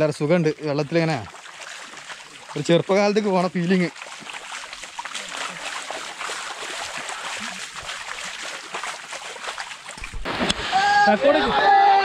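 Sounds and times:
rain runoff flowing: 0.0s - 12.0s.

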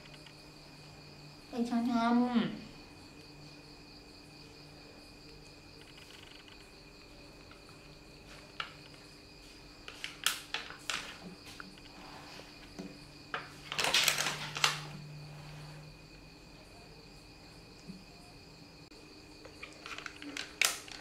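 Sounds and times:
crickets chirping: 0.0s - 21.0s
crackly rustle of handling: 5.2s - 15.8s, 19.4s - 21.0s.

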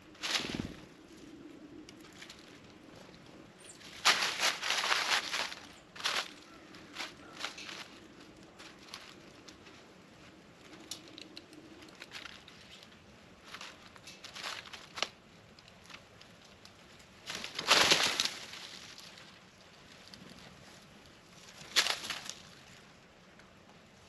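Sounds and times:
birds tapping and rustling: 0.0s - 23.8s
rushing flurry of wings: 0.2s - 1.0s.

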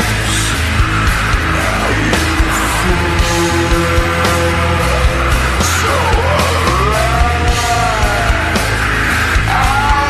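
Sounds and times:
slowed-down heavy rock music: 0.0s - 10.0s.

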